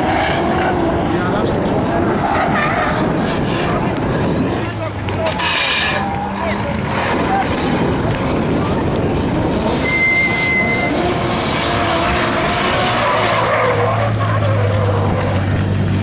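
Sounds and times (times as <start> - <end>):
car engines revving: 0.0 - 16.0
tyre noise: 0.0 - 16.0
low engine hum: 2.9 - 16.0
tyre squeal: 5.2 - 6.6, 9.6 - 15.5.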